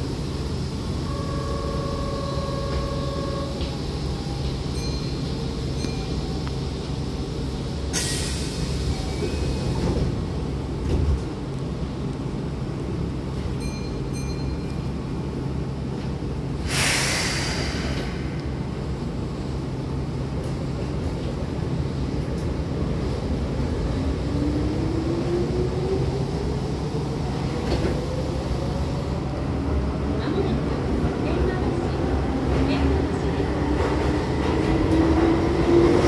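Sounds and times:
low train hum: 0.0 - 36.0
air hiss: 7.8 - 9.3, 16.6 - 18.9
train doors sliding closed: 7.8 - 11.4, 15.9 - 19.6, 27.1 - 29.1
chime-like tone: 13.6 - 14.9.

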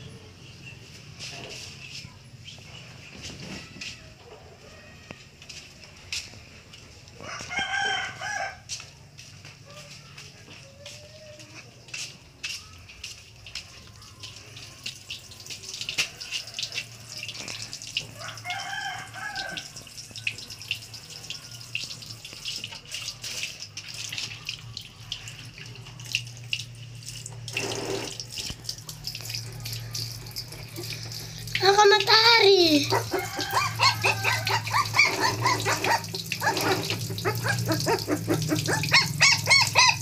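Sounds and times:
water splashing in a plastic basin: 12.3 - 40.0.

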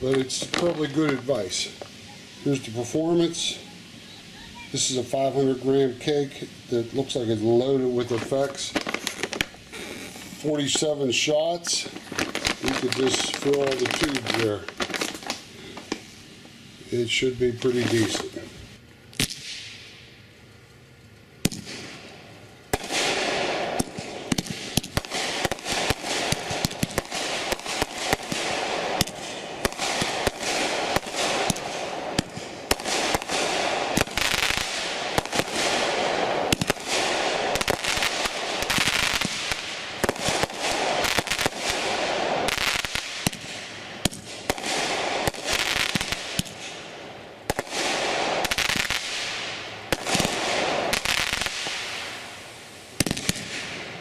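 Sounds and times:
firework cake bangs and crackling: 0.0 - 3.6, 4.6 - 16.2, 19.1 - 20.1, 21.4 - 54.0.

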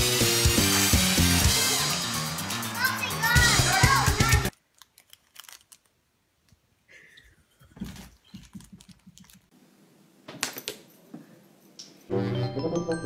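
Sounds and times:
plastic wrappers crinkling: 4.5 - 6.6, 7.8 - 9.5.

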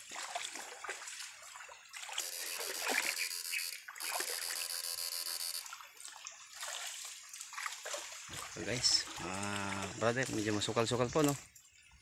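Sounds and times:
water splashing around legs: 0.0 - 3.2, 5.7 - 11.6
pulsing electrical buzz: 2.2 - 5.7.

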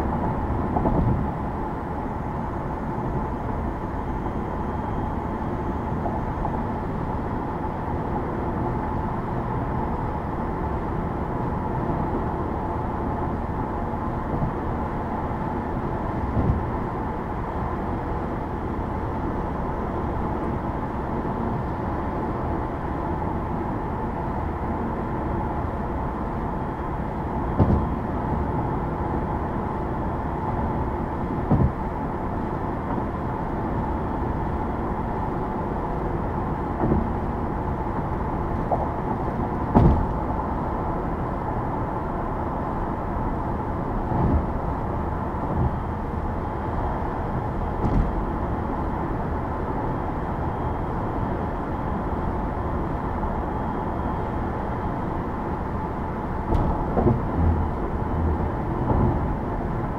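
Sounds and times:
road and tyre noise: 0.0 - 59.9
short thumps: 56.5 - 59.2.

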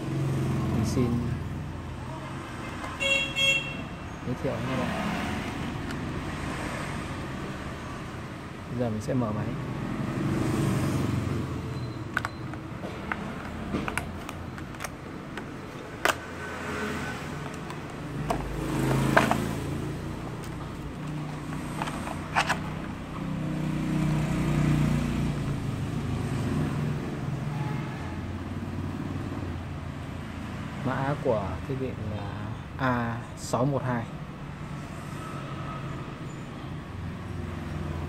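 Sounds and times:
road traffic rumble: 0.0 - 38.0
sharp plastic snaps: 12.2 - 16.3.

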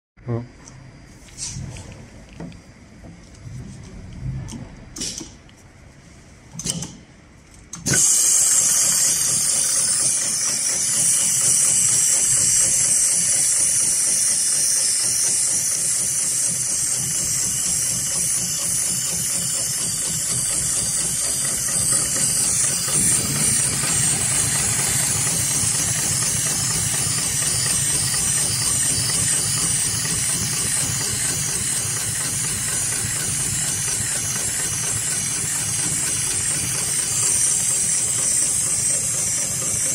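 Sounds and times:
sewing machine running: 7.8 - 39.9.

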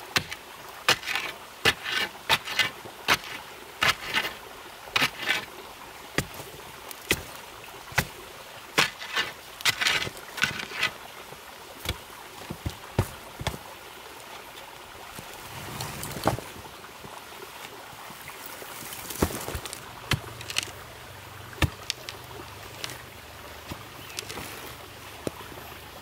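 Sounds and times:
charcoal fire crackling: 18.4 - 20.9, 21.6 - 23.1.

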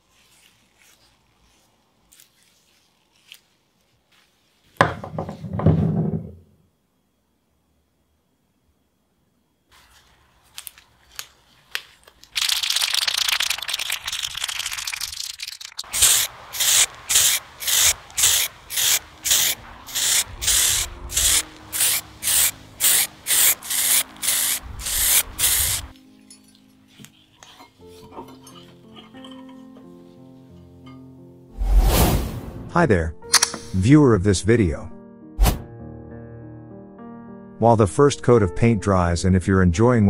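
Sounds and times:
aerosol spray paint hissing: 12.4 - 25.9
soft background music: 19.0 - 40.0.

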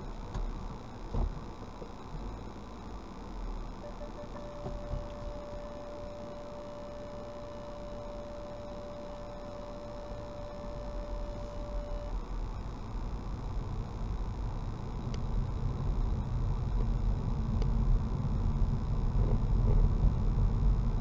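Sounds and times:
car engine and road noise: 0.0 - 21.0
parking sensor beeps: 3.8 - 12.2.

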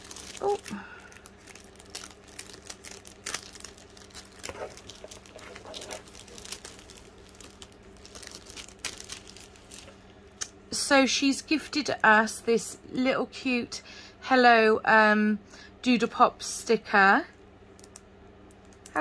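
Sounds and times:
plastic packets crinkling: 0.0 - 10.3, 17.8 - 19.0.

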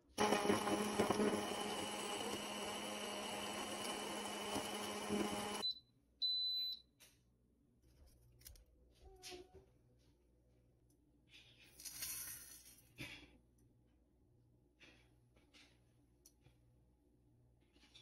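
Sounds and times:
blender motor running: 0.0 - 5.6.

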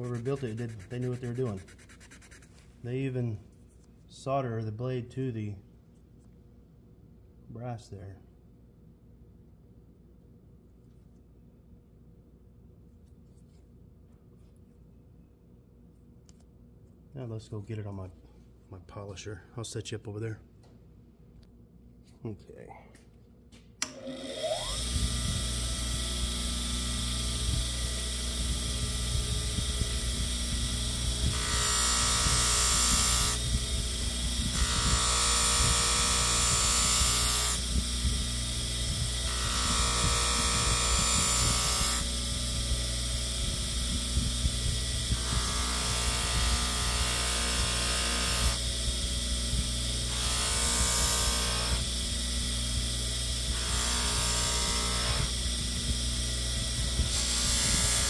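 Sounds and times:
bench polisher motor humming: 0.0 - 2.4, 23.9 - 58.0
knife hissing on buffing wheel: 0.0 - 2.5.

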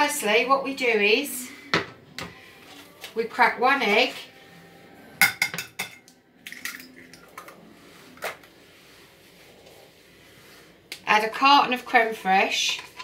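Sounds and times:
egg cracking on ceramic bowl: 5.2 - 7.5.

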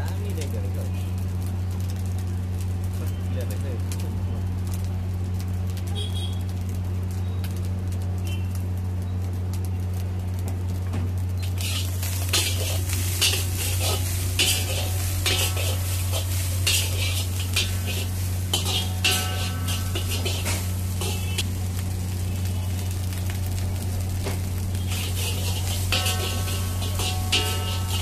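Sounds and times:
frying sizzle: 0.0 - 28.0
steady low hum: 11.2 - 28.0
metal spatula scraping wok: 11.4 - 21.5, 24.7 - 28.0.

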